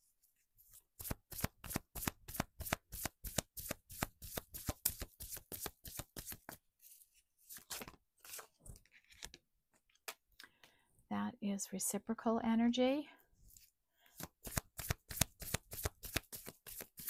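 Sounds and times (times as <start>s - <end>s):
soft card sounds: 0.6s - 10.7s, 13.4s - 17.0s
cards riffle shuffling: 1.0s - 9.4s, 14.1s - 17.0s.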